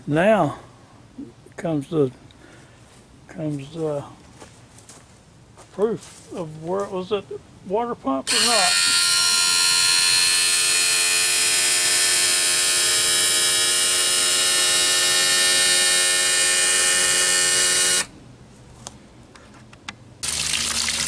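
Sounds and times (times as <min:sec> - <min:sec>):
electric motor whine: 0:08.3 - 0:18.2.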